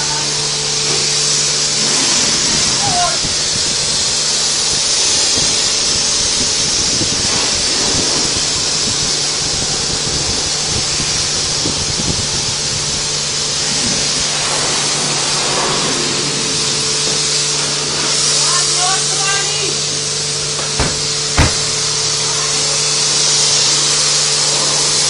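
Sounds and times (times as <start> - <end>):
pressure washer spraying water: 20.5 - 22.4
steady low hum: 20.5 - 22.4.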